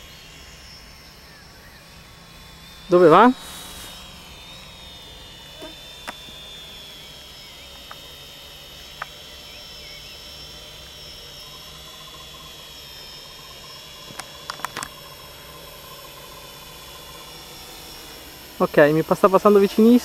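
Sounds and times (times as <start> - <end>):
quadcopter propellers whining: 0.0 - 20.0
sharp clicks: 14.1 - 15.0.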